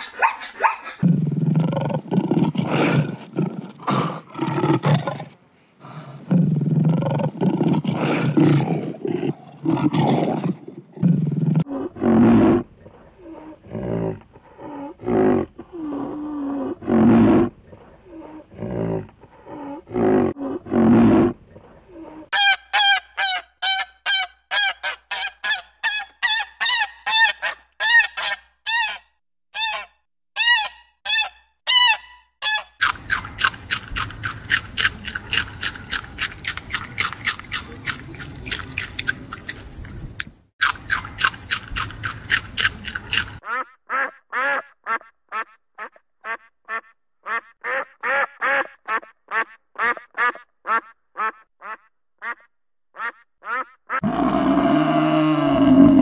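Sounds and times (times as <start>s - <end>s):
rhinoceros snorts and grunts: 1.0s - 22.3s.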